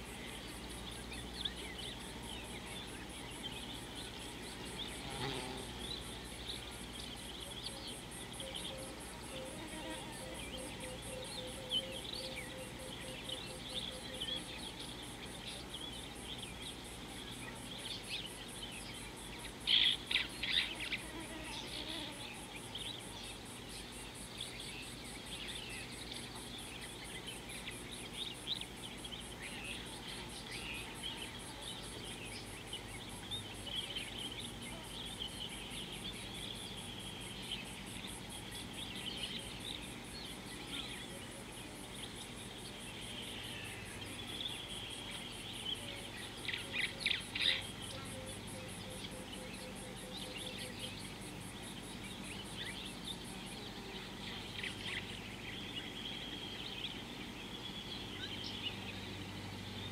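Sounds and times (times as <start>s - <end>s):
insects chirring: 0.0s - 59.9s.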